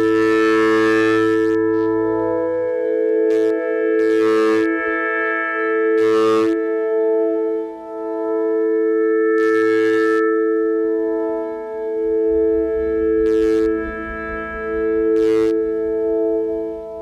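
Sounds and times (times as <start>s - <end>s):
low rumble: 11.9s - 17.0s.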